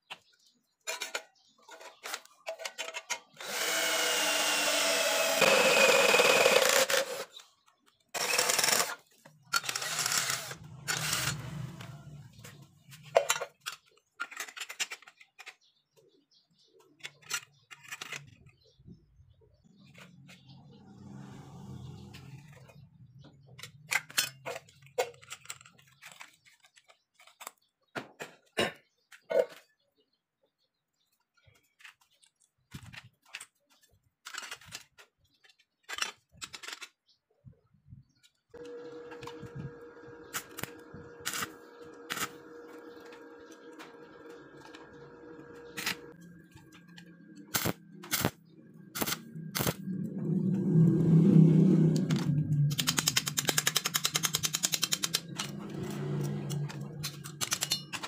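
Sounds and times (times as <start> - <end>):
steady hum: 38.6 - 52.5
welding arc crackling: 47.5 - 48.4, 49.0 - 49.8
metal parts clinking: 56.5 - 58.0.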